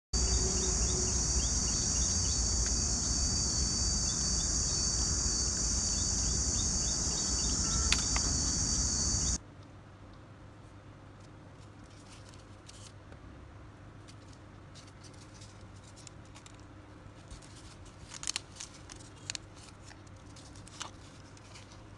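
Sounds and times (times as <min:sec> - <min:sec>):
high-pitched insect chorus: 0:00.2 - 0:09.4.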